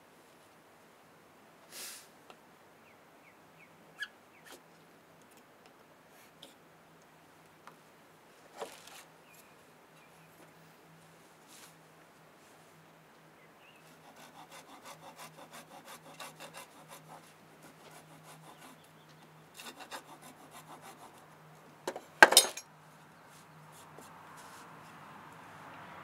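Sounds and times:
hand saw cutting wood: 13.9s - 18.9s, 19.6s - 21.3s.

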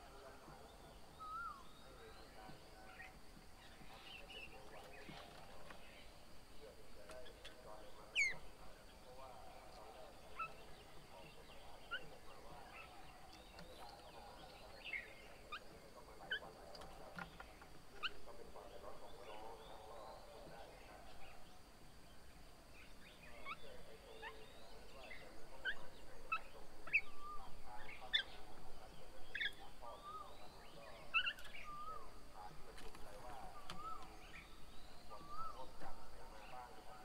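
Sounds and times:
birds chirping and whistling: 0.0s - 6.2s, 7.2s - 8.4s, 22.8s - 32.6s, 33.3s - 36.7s
bird chatter: 0.0s - 37.0s.

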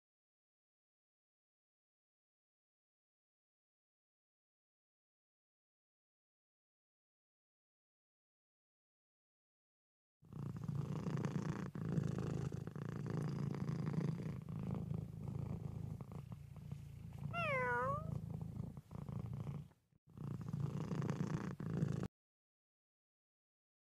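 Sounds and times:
cat purring: 10.3s - 22.1s
cat meowing: 17.3s - 18.2s.

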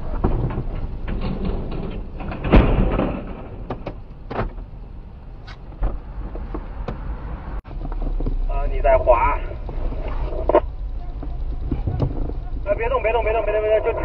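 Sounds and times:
sharp knocks and clicks: 0.0s - 4.8s, 5.4s - 8.5s
vehicle crash thud: 0.0s - 5.0s
low vehicle rumble: 0.0s - 14.0s.

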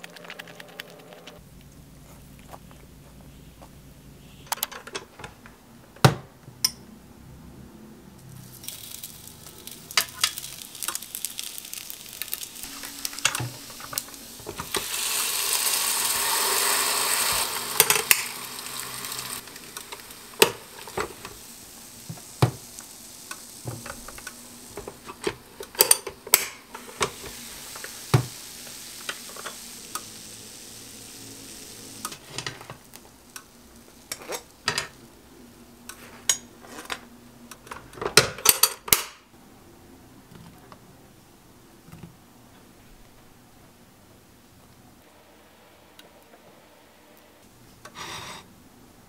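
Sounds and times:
butter sizzling in waffle maker: 8.3s - 36.4s
appliance and utensil clicks: 17.2s - 21.4s, 22.4s - 28.3s, 32.0s - 35.0s, 37.5s - 39.2s.

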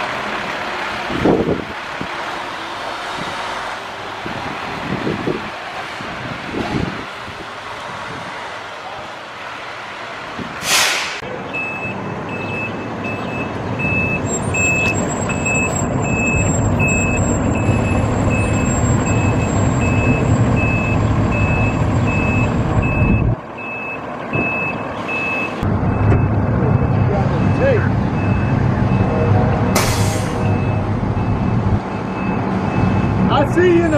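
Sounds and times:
air brakes hissing: 10.6s - 11.2s, 29.7s - 30.6s
reversing alarm beeping: 11.5s - 33.2s
diesel engine running: 11.6s - 33.9s.

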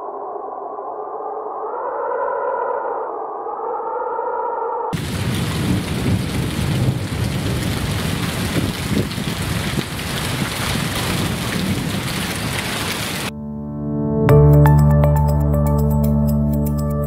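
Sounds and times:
heavy rain pouring: 5.0s - 13.3s.

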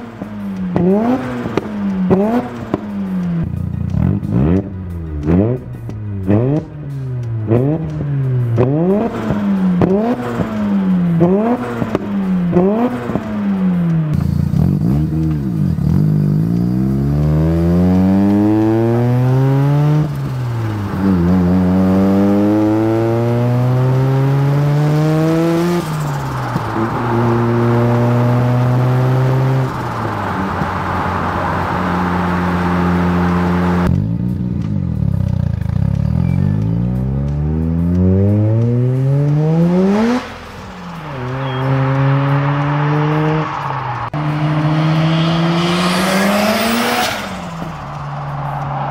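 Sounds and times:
rotary engine revving: 36.0s - 48.1s.

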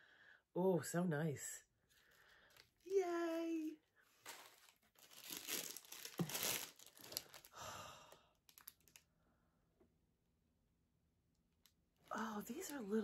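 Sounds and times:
wrapping paper crinkling and tearing: 2.2s - 7.6s, 8.5s - 9.0s.

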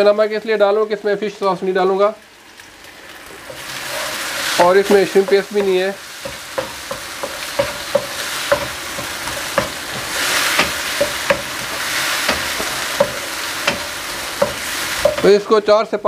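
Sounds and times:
vegetables sizzling in oil: 0.0s - 15.8s
wooden spatula knocking a pan: 3.5s - 15.4s.

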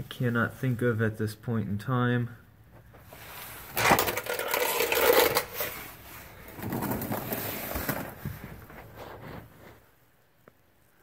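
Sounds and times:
scraping and rustling on concrete: 2.8s - 10.0s.

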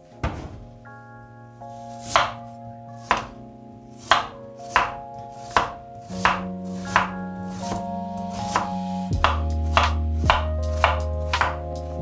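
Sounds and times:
knife slicing onion on board: 4.0s - 7.8s, 8.4s - 11.6s.

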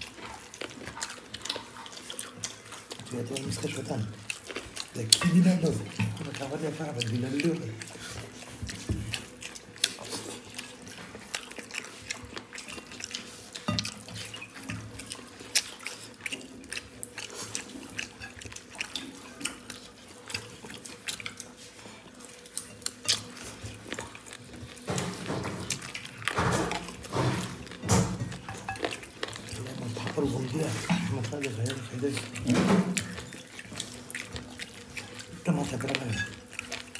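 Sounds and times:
wet hand eating sounds: 0.0s - 36.9s.

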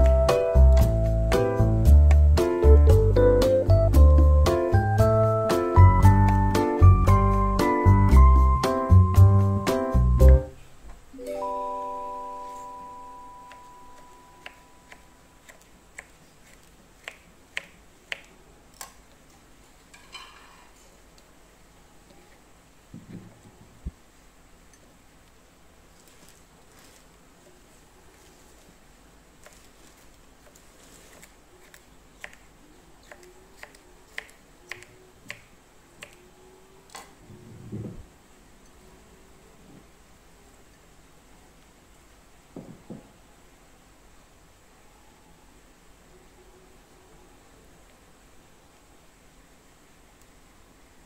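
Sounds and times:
keyboard chord ringing: 0.0s - 10.5s, 11.2s - 14.9s.

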